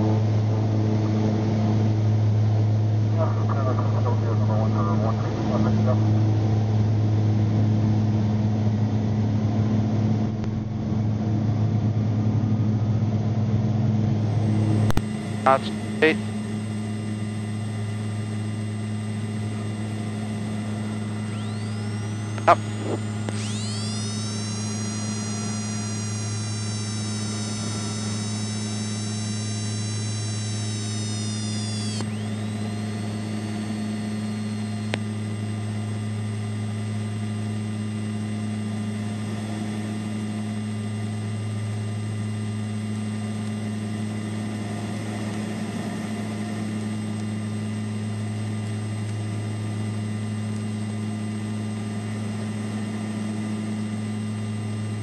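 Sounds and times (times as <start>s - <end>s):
rising whine of landing gear: 0.0s - 55.0s
turboprop engine drone: 0.0s - 55.0s
electrical hum and hiss: 3.1s - 6.2s, 13.8s - 44.2s.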